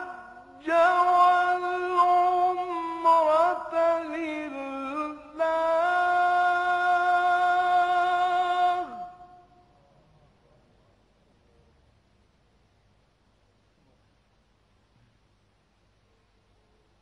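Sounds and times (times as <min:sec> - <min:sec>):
man chanting melodically: 0:00.0 - 0:09.4.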